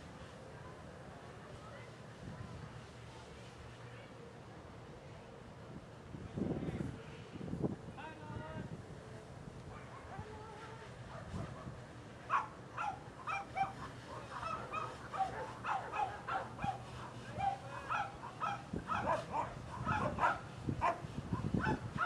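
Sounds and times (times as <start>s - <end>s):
dog barking: 12.3s - 16.8s, 17.4s - 21.0s, 21.6s - 22.0s.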